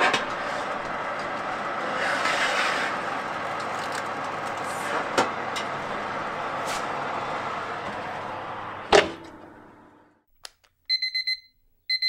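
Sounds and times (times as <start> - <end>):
oven fan running: 0.0 - 10.2
oven door shutting: 4.0 - 9.9.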